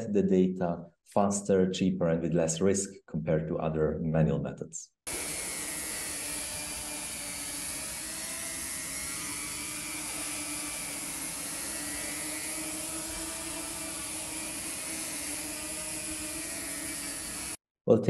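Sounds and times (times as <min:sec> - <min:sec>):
drone propellers whirring: 0:05.1 - 0:17.6.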